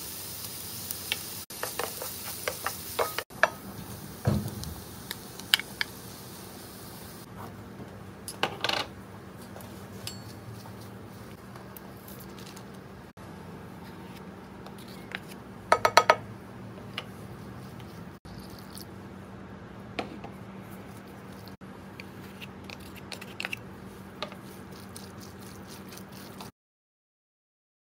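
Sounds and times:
utensil clinking against pan: 1.6 - 3.6, 10.0 - 10.5.

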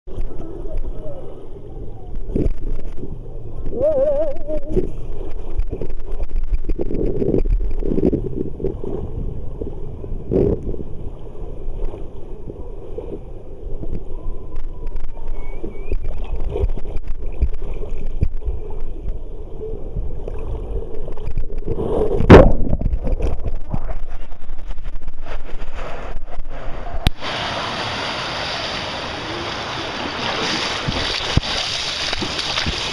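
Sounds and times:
rider sliding down water slide: 21.5 - 32.9
splash into pool: 27.1 - 32.9.

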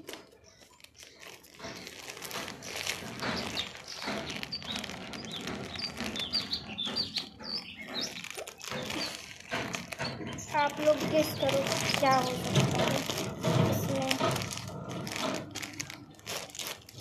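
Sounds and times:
plastic bag crinkling and tearing: 0.0 - 17.0
birds chirping: 0.2 - 16.5.

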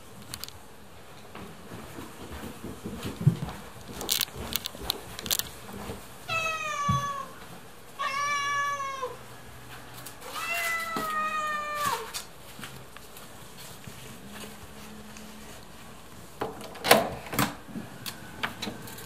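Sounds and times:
cat meowing: 6.3 - 7.4, 8.0 - 9.2, 10.2 - 12.2.

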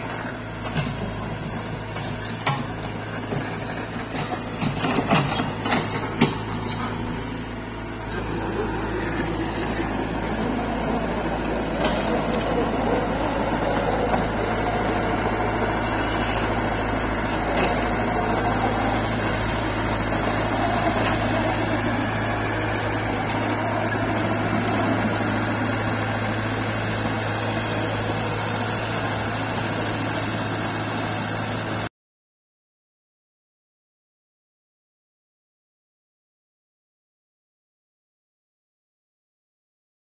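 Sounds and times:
excavator diesel engine idling: 0.0 - 31.9.

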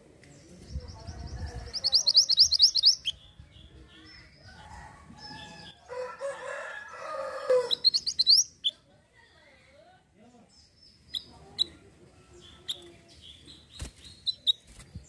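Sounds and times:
high upward-sweeping bird chirps: 1.6 - 3.2, 7.6 - 8.8.

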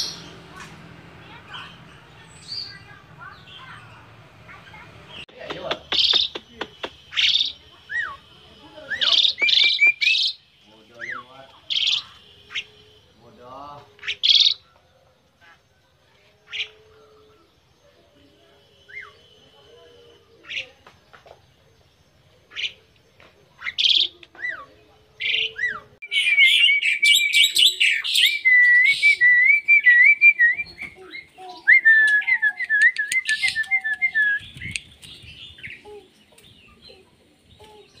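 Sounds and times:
bird warbling whistles and trills: 5.9 - 13.0, 14.0 - 14.7, 23.6 - 37.0.

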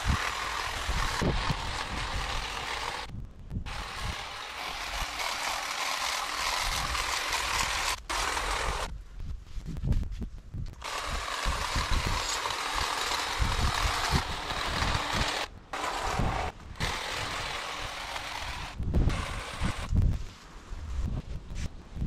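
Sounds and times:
hedge trimmer cutting hedge: 0.0 - 3.1, 3.7 - 9.0, 10.8 - 20.0.

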